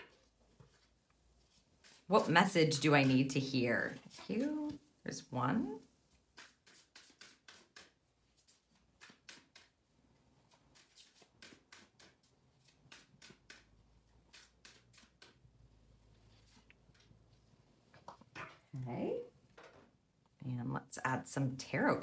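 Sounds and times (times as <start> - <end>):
cards flicking and sliding: 6.3 - 9.8, 10.5 - 15.4.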